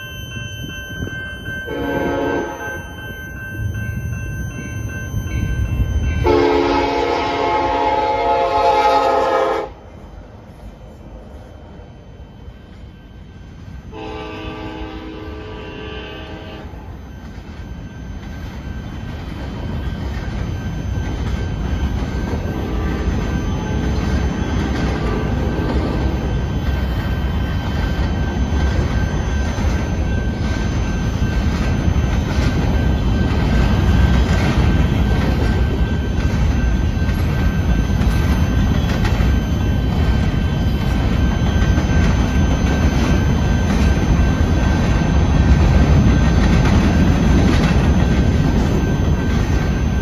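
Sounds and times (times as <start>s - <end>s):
freight train wheels rumbling on rail: 0.0s - 50.0s
locomotive horn: 1.7s - 2.9s, 6.2s - 9.8s, 13.9s - 16.9s, 22.6s - 23.1s.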